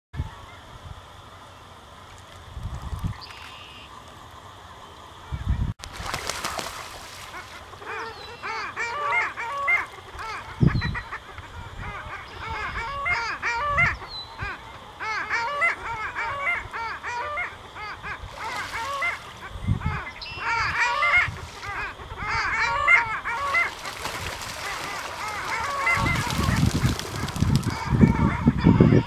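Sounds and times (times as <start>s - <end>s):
ducks yodelling calls: 7.4s - 29.0s.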